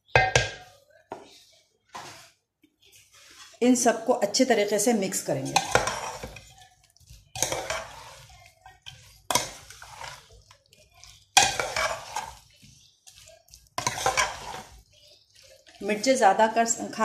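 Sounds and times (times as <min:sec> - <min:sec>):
metal spoon scraping a metal pot: 0:05.3 - 0:17.0.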